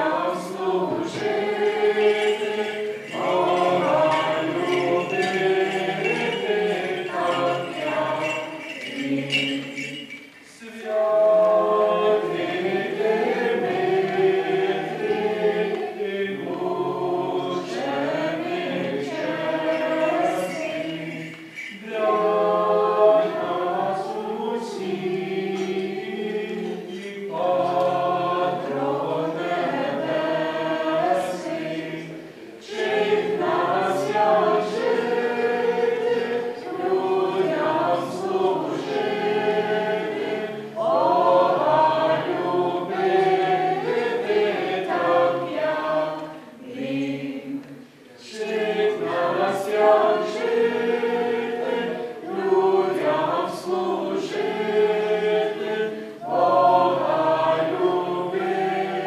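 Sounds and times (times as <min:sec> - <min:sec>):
congregation singing a hymn: 0:00.0 - 0:59.0.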